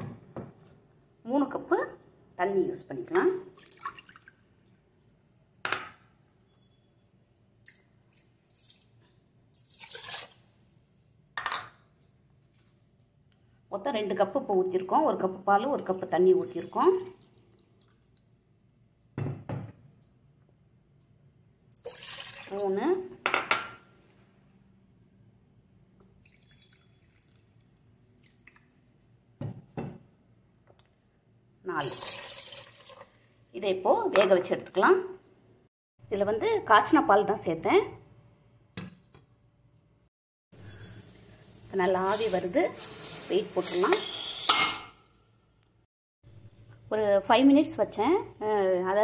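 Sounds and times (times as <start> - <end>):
water pouring into pot: 9.5 - 10.7, 15.8 - 18.1, 21.8 - 22.7, 26.2 - 28.6, 31.8 - 33.5.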